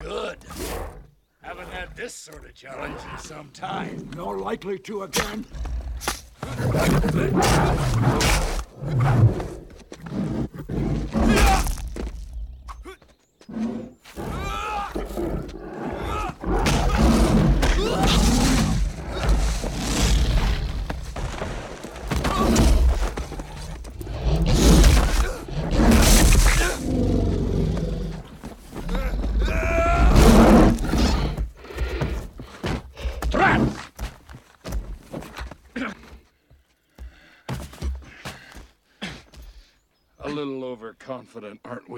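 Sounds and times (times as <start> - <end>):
dragon roaring and growling: 5.5 - 12.1, 13.5 - 32.1
heavy thuds and blows: 16.1 - 27.4.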